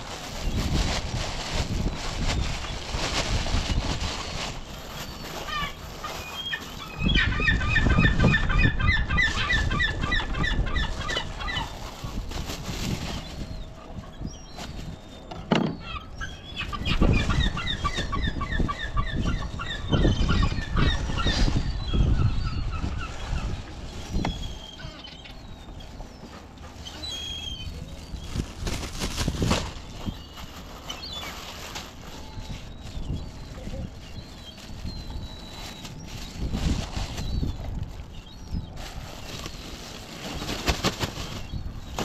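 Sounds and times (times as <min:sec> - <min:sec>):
plastic rustling: 0:00.0 - 0:07.2, 0:09.1 - 0:15.7, 0:22.9 - 0:42.0.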